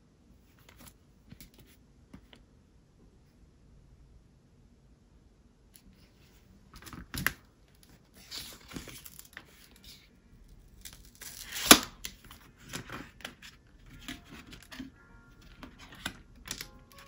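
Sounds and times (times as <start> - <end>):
packaging tearing and crinkling: 8.2 - 9.8, 10.7 - 13.4.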